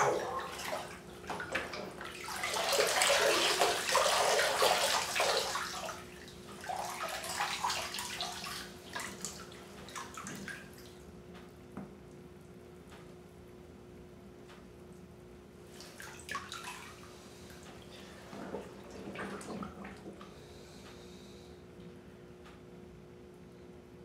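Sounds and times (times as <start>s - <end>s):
bathwater sloshing and splashing: 0.0s - 11.1s, 15.6s - 20.8s
water streaming off a jacket: 2.2s - 6.0s.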